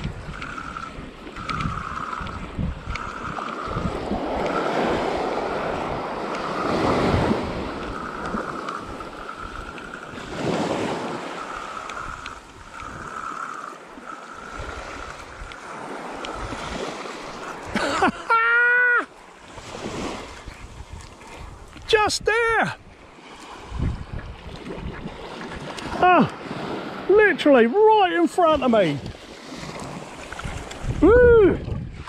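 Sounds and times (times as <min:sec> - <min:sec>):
fishing reel whirring: 0:00.0 - 0:17.9
wind on microphone: 0:00.0 - 0:18.2, 0:19.4 - 0:27.2, 0:28.5 - 0:32.0
small waves breaking on beach: 0:00.0 - 0:32.0.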